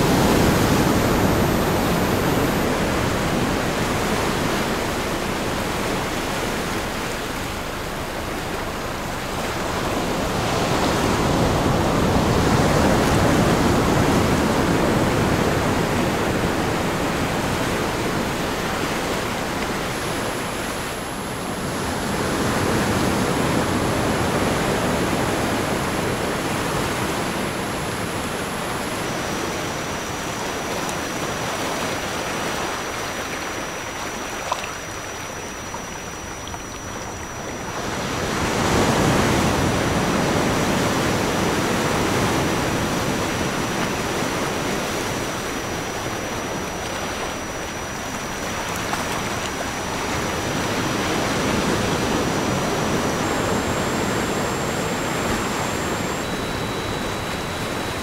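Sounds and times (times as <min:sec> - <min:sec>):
high-pitched tone: 0:00.0 - 0:02.9, 0:51.4 - 0:58.0
ocean waves washing: 0:00.0 - 0:58.0.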